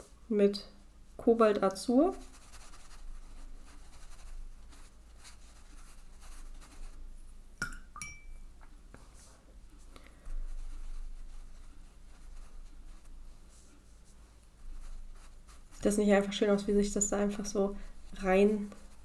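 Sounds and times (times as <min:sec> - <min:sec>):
brush scratching on paper: 0:02.1 - 0:07.1, 0:10.2 - 0:19.0
light clink with ring: 0:07.6 - 0:08.4.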